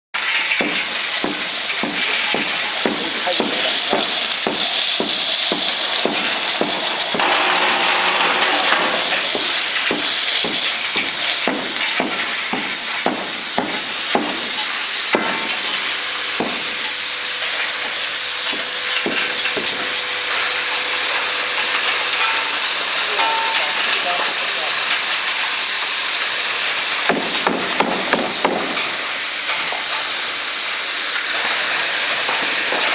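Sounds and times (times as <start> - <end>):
bottles rattling in hopper: 0.2 - 32.9
machine hum: 2.8 - 11.7.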